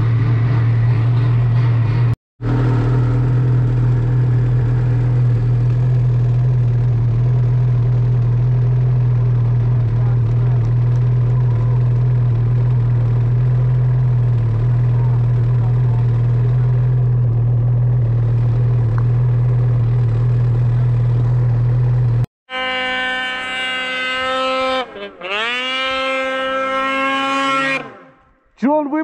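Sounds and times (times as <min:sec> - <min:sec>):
snowmobile engine idling: 0:00.0 - 0:22.3.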